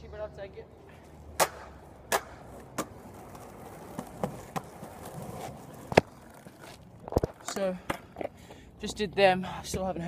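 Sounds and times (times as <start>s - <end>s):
skateboard clacks: 1.4s - 8.4s
skateboard wheels rumbling on concrete: 1.4s - 8.6s.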